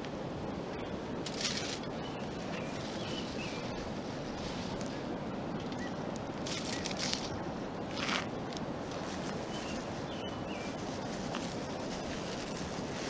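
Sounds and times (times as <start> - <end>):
outdoor background hiss: 0.0 - 13.0
aluminium foil crinkling: 6.4 - 7.4.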